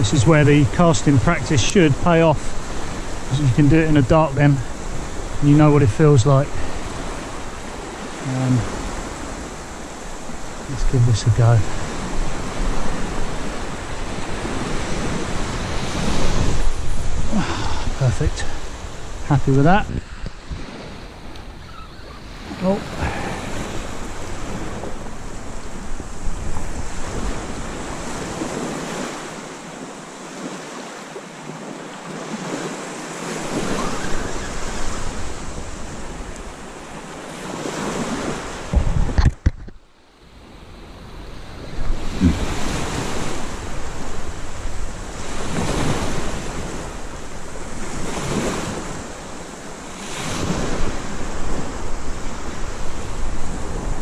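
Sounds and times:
wind buffeting microphone: 0.0 - 30.5, 33.2 - 39.8, 40.8 - 54.0
surf washing up beach: 0.0 - 54.0.

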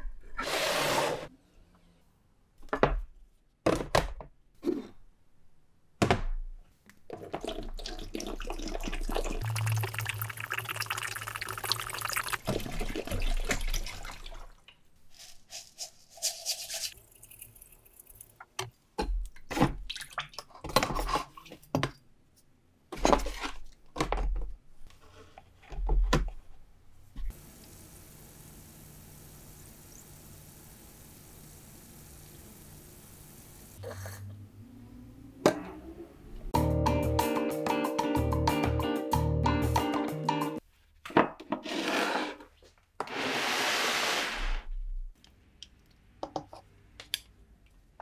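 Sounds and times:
water pouring into plastic tub: 7.2 - 14.6
hiss of chemical poured in water: 8.5 - 12.4.

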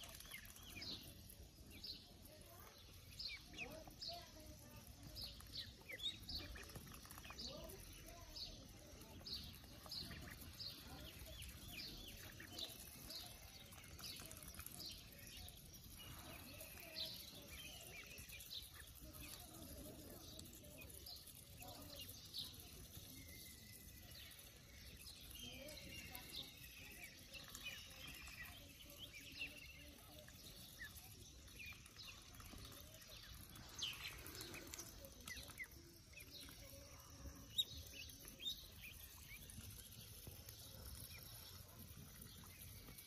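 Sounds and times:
ducklings peeping: 0.0 - 43.0
duck bills clicking on ground: 4.8 - 15.9.

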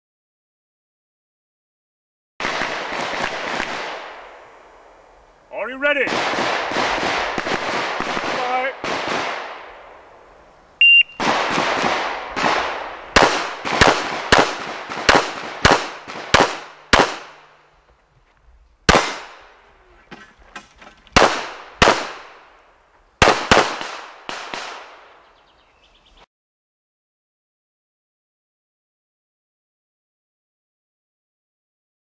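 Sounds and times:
pistol shots: 2.4 - 4.3, 6.0 - 9.8, 11.1 - 17.6, 18.9 - 19.6, 21.2 - 22.5, 23.2 - 25.2
electronic timer beep: 10.8 - 11.2.

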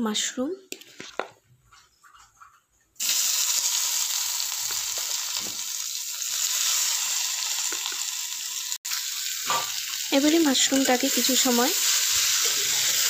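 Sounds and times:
spatula stirring: 0.7 - 3.0
vegetables sizzling in hot oil: 3.0 - 13.0.

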